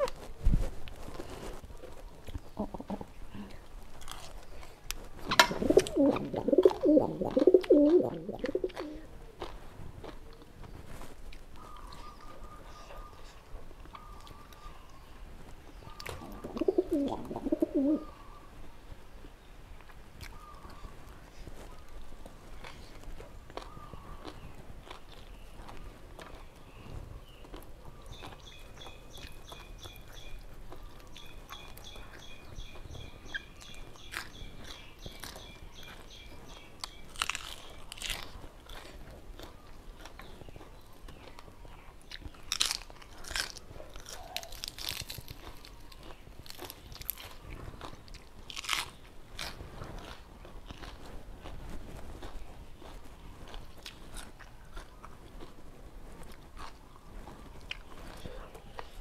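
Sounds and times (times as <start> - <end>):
chewing: 0.0 - 14.8, 19.8 - 55.6, 56.2 - 59.0
lettuce crunching bites: 3.9 - 12.2, 22.6 - 26.8, 27.4 - 55.6.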